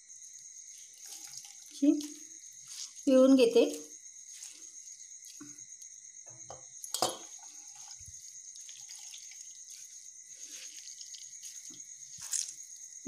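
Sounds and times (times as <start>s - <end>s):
water dripping onto steel plate: 1.0s - 2.2s, 6.8s - 9.6s.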